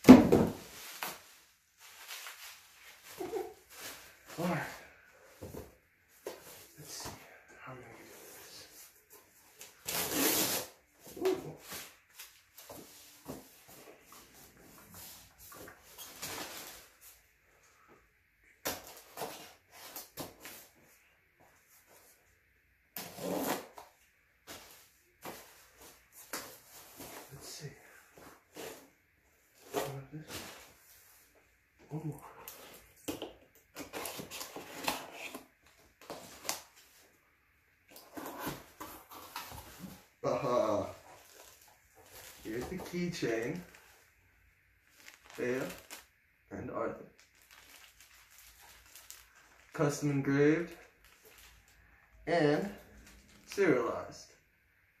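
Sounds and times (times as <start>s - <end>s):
cardboard rustling: 44.8s - 46.1s.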